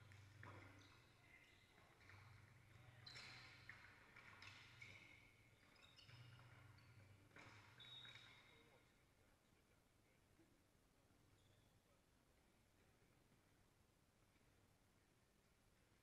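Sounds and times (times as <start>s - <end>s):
shoe squeaks on court: 0.1s - 8.7s.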